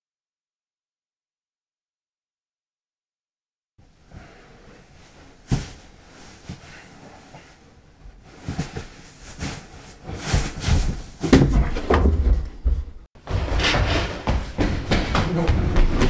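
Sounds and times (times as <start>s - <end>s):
clothes and bedding rustling: 3.8s - 14.8s.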